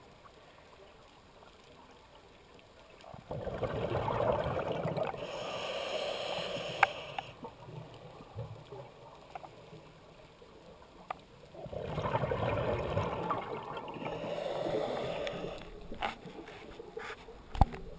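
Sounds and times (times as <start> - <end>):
exhaled bubbles underwater: 3.0 - 5.4, 11.5 - 15.6.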